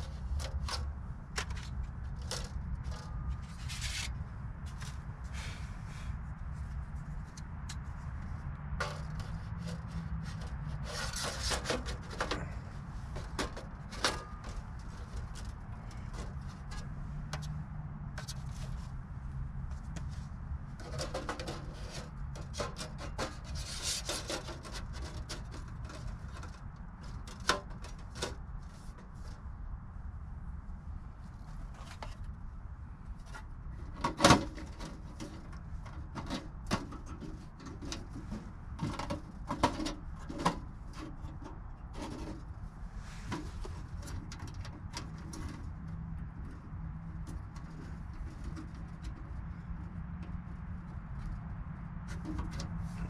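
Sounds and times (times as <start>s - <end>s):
metal panels clinking and scraping: 0.0s - 5.6s, 8.8s - 18.8s, 19.8s - 29.3s, 33.2s - 42.5s
distant highway traffic rumble: 0.0s - 53.0s.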